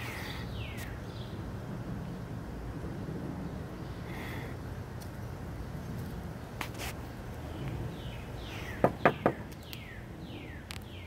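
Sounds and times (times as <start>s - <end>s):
background noise: 0.0s - 11.0s
bird calling: 7.6s - 11.0s
sharp knocks: 8.8s - 9.6s.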